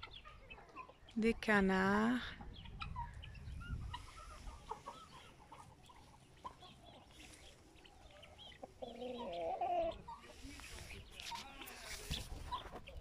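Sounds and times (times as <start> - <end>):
chickens clucking: 0.0 - 13.0
chicken drawn-out call: 7.9 - 10.4.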